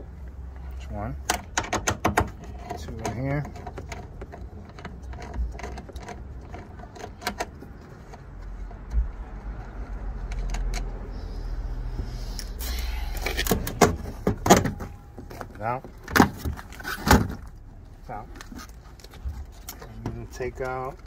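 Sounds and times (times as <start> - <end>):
low steady hum: 0.0 - 21.0
tools clicking and rattling: 1.2 - 11.2.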